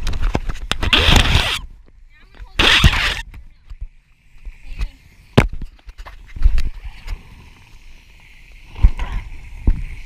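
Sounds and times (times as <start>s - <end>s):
faint water spraying hiss: 2.4s - 10.0s.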